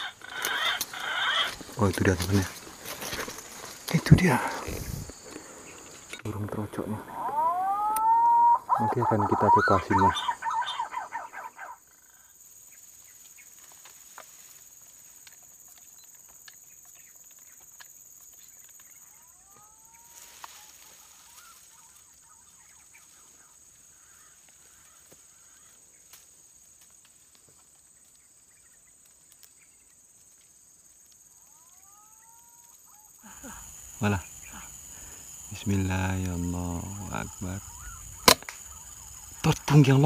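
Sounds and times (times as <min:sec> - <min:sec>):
bird call: 0:00.0 - 0:01.8, 0:06.8 - 0:13.5, 0:36.3 - 0:40.0
high-pitched insect drone: 0:00.0 - 0:10.9, 0:31.2 - 0:40.0.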